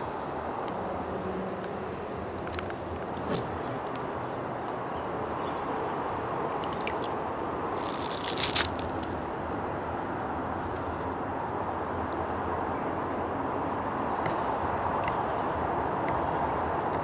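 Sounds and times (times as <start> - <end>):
plastic wrapper crinkling: 7.8 - 9.3.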